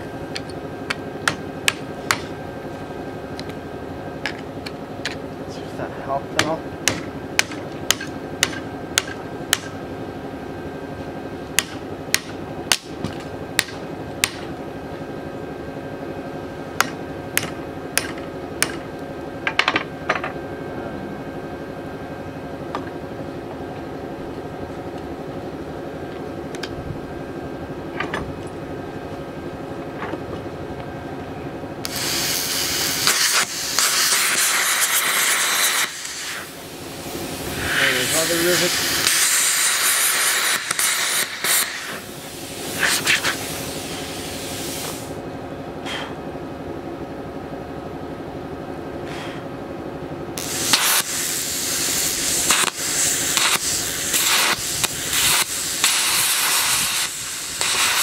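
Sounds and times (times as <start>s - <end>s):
hammer striking metal punch: 0.9s - 2.3s, 6.4s - 9.8s, 11.6s - 14.5s, 16.8s - 18.9s
arc welding hiss: 31.8s - 45.2s, 50.4s - 58.0s.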